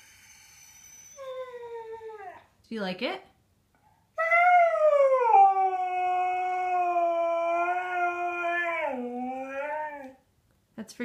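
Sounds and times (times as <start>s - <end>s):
dog howling: 4.2s - 10.2s.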